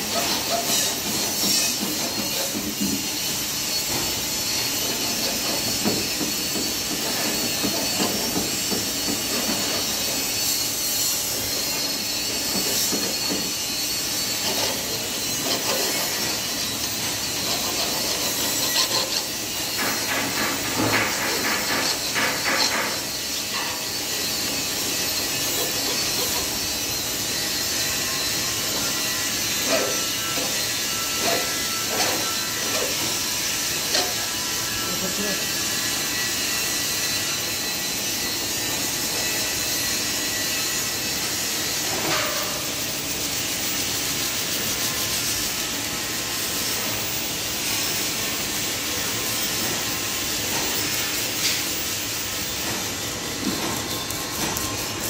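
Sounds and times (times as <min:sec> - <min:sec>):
hand tools knocking and scraping: 0:00.0 - 0:03.1, 0:04.8 - 0:10.2, 0:11.7 - 0:13.6, 0:14.4 - 0:23.9
hiss of workshop machinery: 0:00.0 - 0:55.0.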